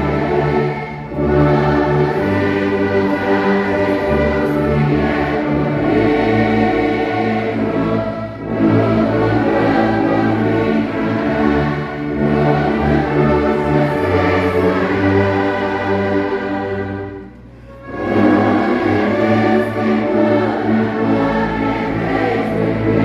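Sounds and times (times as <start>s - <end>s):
brass ensemble playing a hymn: 0.0s - 23.0s.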